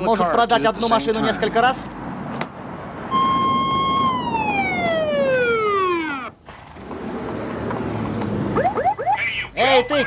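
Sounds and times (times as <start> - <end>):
traffic noise: 0.0 - 10.0
police siren winding down: 3.1 - 6.4, 8.5 - 9.2.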